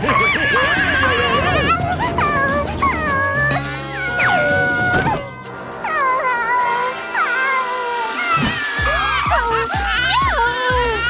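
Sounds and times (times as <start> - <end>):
cartoon background music: 0.0 - 11.0
kitten whimpering cries: 0.1 - 5.3.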